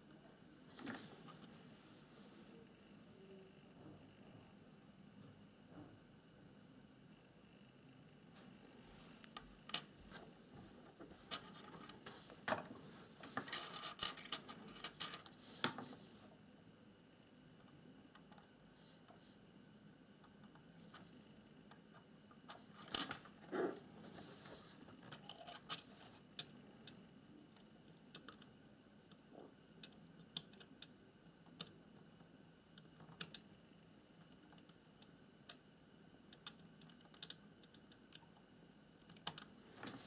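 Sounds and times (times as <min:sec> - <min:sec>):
faint steady high tone: 0:02.0 - 0:05.9.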